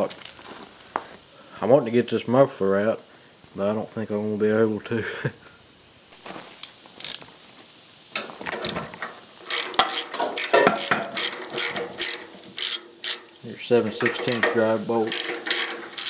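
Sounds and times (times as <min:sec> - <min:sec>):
ratchet wrench clicking: 0:06.6 - 0:07.2, 0:09.4 - 0:16.0.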